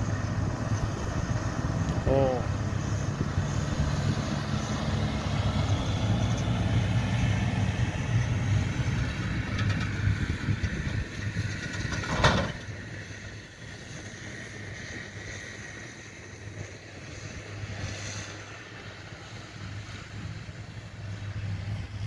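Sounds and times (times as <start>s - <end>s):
tractor engine running: 0.0s - 22.0s.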